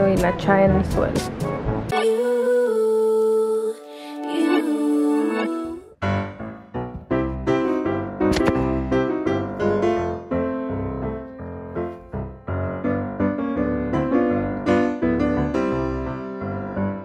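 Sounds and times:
piano background music: 0.0s - 17.0s.

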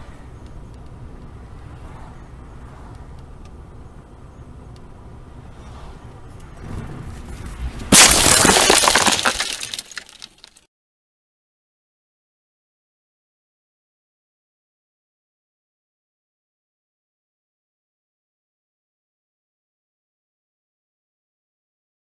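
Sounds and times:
car cabin road noise: 0.0s - 8.0s
cracking and rattling: 6.7s - 10.6s
car collision impact: 7.9s - 10.3s.

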